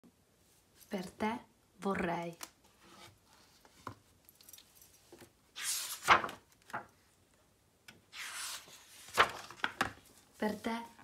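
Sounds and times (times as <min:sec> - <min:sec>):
book pages turning: 0:05.1 - 0:06.9, 0:08.1 - 0:11.0.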